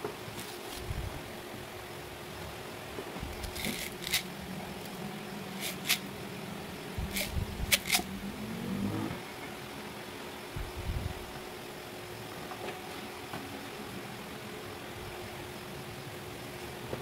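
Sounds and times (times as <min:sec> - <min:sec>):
plastic bag rustling: 0:00.3 - 0:01.0, 0:03.2 - 0:06.1
low hum: 0:03.0 - 0:11.5.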